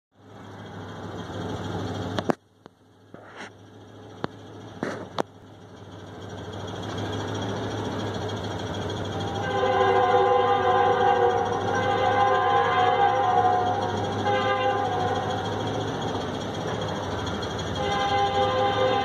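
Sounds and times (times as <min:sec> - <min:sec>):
engine rumble: 0:00.1 - 0:19.0
sharp clicks and knocks: 0:02.1 - 0:03.6.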